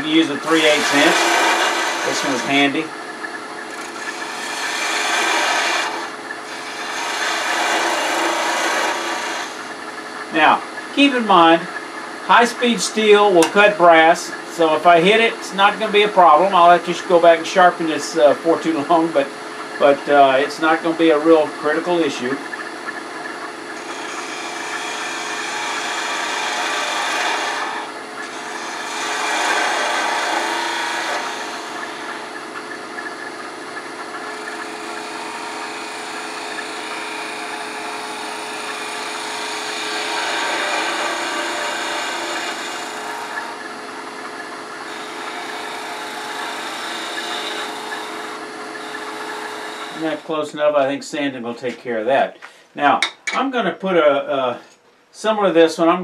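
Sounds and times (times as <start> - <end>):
chisel shaving spinning wood: 0.0 - 3.0, 3.6 - 9.8, 23.7 - 32.6, 33.2 - 50.3
wood lathe humming: 0.0 - 10.6, 12.3 - 50.4.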